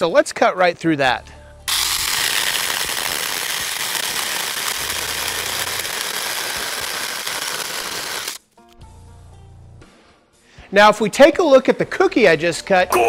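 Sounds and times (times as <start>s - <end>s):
small chainsaw cutting wood: 1.7s - 8.4s.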